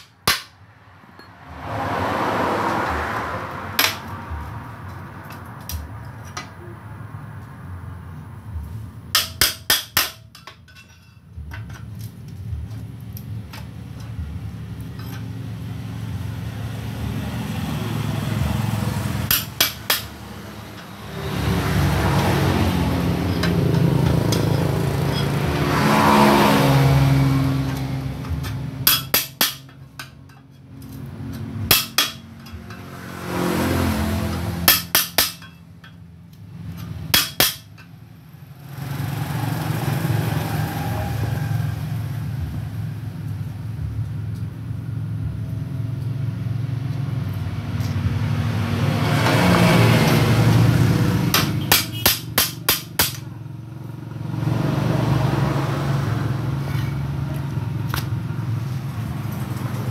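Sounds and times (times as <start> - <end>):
steel rod striking metal muffler: 0.0 - 0.6, 3.5 - 6.8, 8.4 - 12.0, 18.2 - 36.0, 36.6 - 38.0, 48.6 - 53.4
engine running: 11.4 - 59.9.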